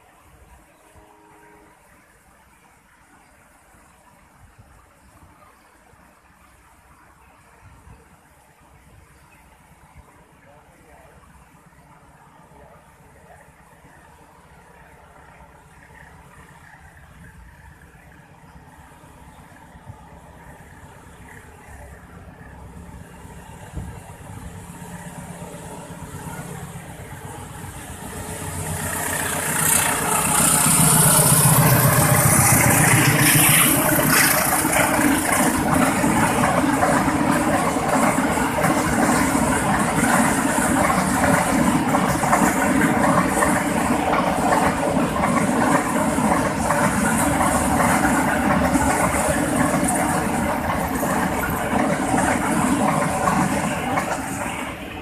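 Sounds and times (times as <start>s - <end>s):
diesel locomotive engine passing: 0.0s - 55.0s.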